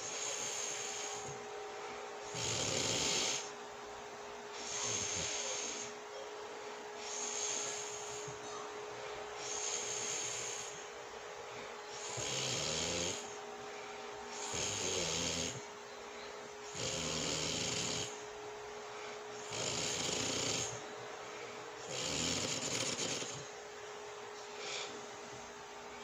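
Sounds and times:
woman snoring: 0:02.3 - 0:03.5, 0:12.0 - 0:13.3, 0:14.4 - 0:15.6, 0:16.7 - 0:18.2, 0:19.4 - 0:20.8, 0:21.8 - 0:23.4.

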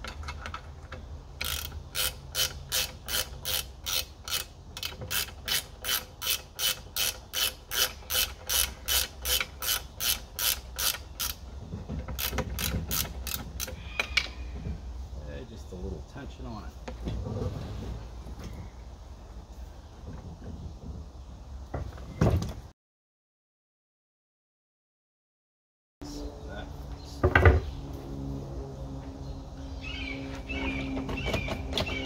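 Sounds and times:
ratchet wrench clicking: 0:01.4 - 0:11.4.

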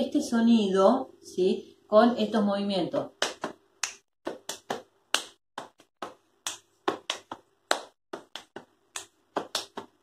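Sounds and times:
hand slapping chest rhythmically: 0:03.2 - 0:10.0.

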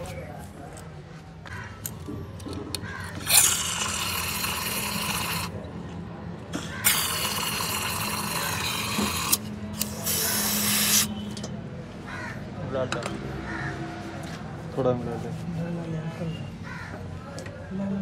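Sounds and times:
aerosol spray can hissing: 0:03.2 - 0:05.6, 0:06.8 - 0:11.1.

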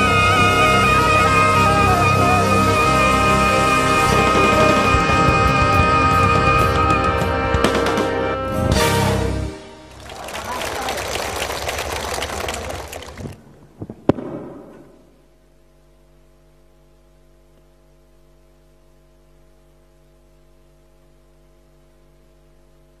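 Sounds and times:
loud concert sound: 0:00.0 - 0:13.4
faint low hum: 0:09.9 - 0:23.0.

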